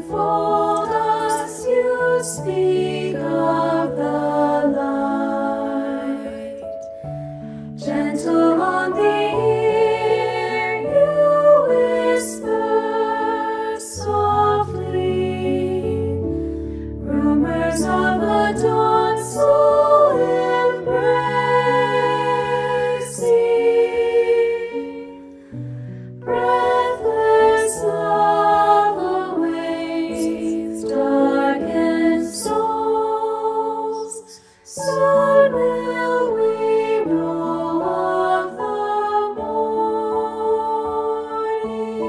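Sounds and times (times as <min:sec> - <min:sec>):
choir singing a hymn: 0:00.0 - 0:25.6, 0:26.2 - 0:42.0
keyboard piano: 0:00.0 - 0:42.0.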